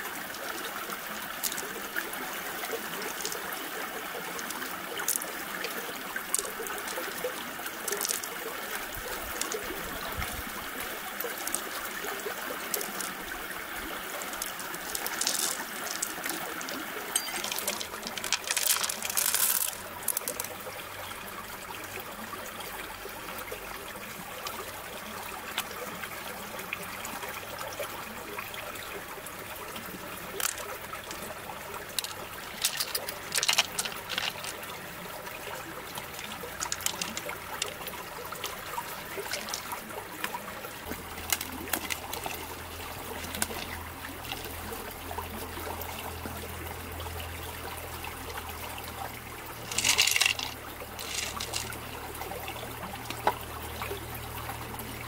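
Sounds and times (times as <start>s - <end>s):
stream trickling over rocks: 0.0s - 55.0s
light clicks of shells handled: 32.0s - 34.6s, 36.0s - 37.8s.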